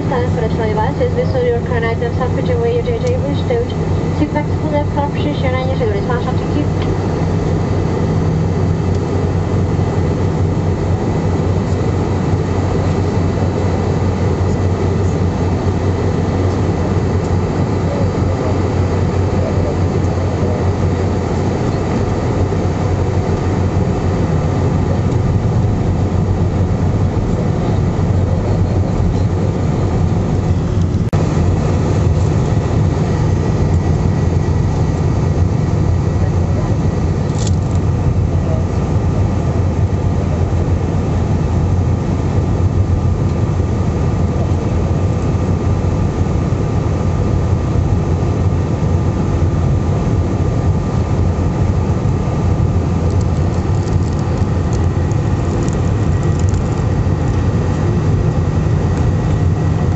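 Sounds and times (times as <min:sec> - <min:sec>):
faint whine tones: 0:00.0 - 0:41.0
jet engine and airflow rumble: 0:00.0 - 0:59.9.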